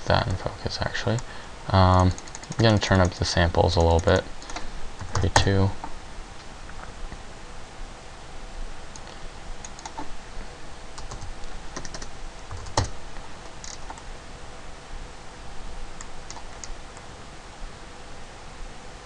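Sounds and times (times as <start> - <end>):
faint steady hum: 0.0 - 19.0
keyboard keys tapping: 2.0 - 3.2, 11.0 - 13.0.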